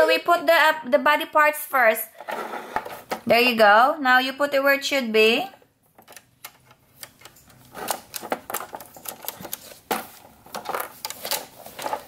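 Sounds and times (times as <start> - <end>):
plastic pieces clicking: 6.0 - 12.0.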